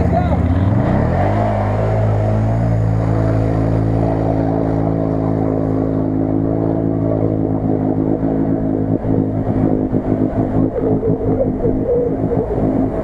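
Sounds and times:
quad bike engine high revs: 0.0 - 7.4.

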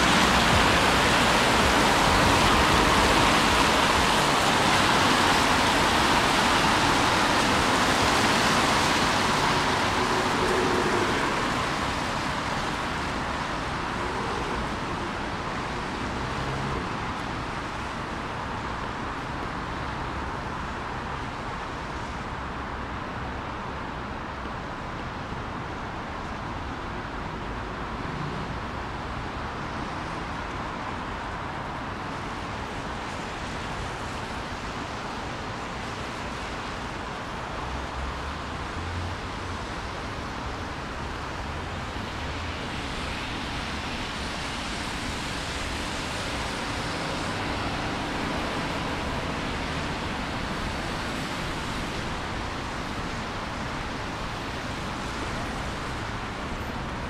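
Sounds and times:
street hiss: 0.0 - 22.7
traffic rumbling: 0.0 - 57.0
vehicle passing: 7.0 - 16.9.

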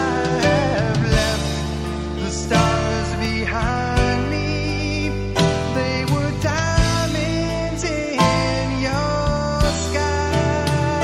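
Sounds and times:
country song with guitar: 0.0 - 11.0.

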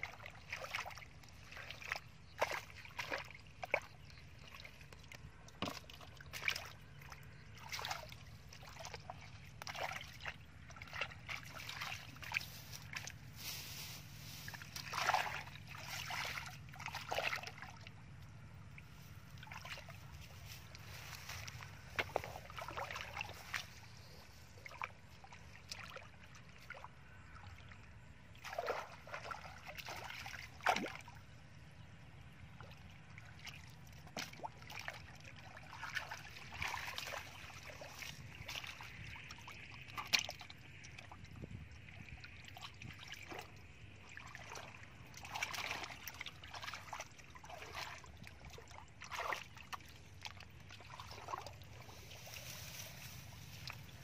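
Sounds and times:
muddy water splashing: 0.0 - 54.0
basket dragged through water: 11.1 - 17.2, 50.9 - 54.0.

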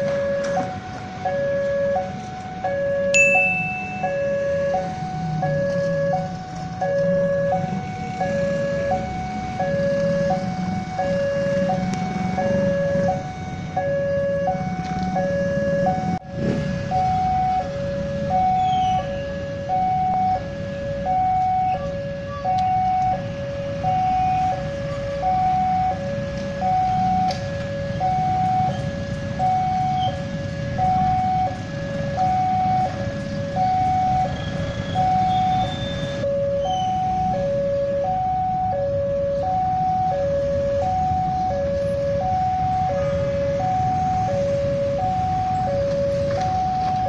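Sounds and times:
motorcycle engines rumbling: 0.0 - 47.0
level crossing two-tone chime: 3.2 - 4.2.

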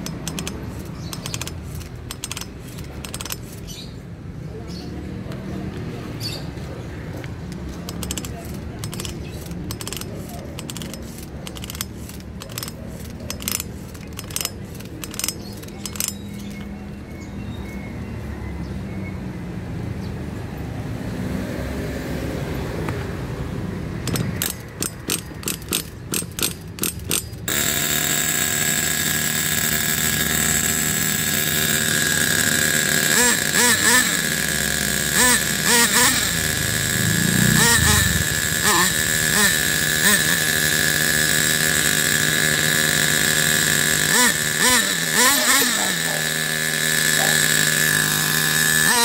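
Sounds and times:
starter cord pulls clicking: 0.0 - 3.8, 7.2 - 16.7, 24.0 - 49.0
small engine high-pitched idle: 0.0 - 4.0, 7.4 - 17.8, 24.0 - 49.0.

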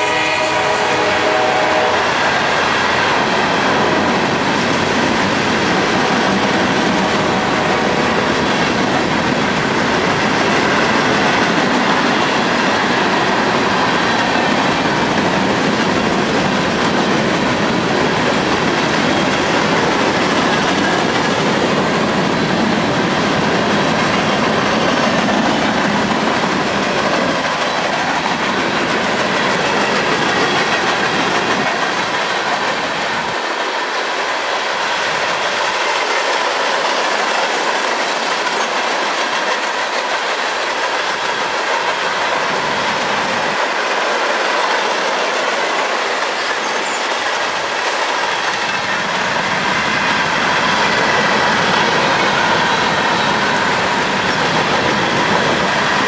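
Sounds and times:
train wheels rumbling on rails: 0.0 - 56.0
wheel squeal: 46.4 - 47.1.

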